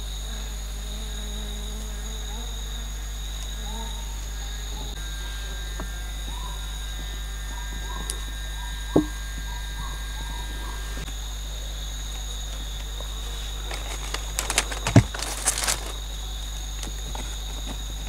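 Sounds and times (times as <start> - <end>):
high insect drone: 0.0 - 18.0
bamboo sticks knocking and clattering: 12.8 - 16.0.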